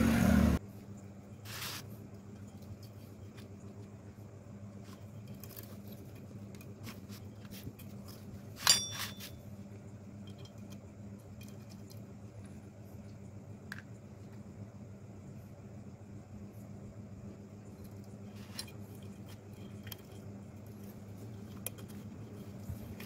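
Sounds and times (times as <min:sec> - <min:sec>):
metal valve parts clinking: 0:07.8 - 0:09.4.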